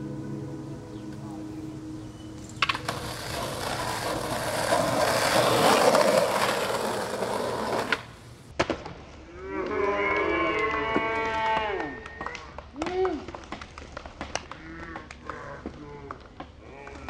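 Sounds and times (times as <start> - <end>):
skateboard wheels rolling on concrete: 2.3 - 9.3
skateboard clacks: 2.6 - 8.3.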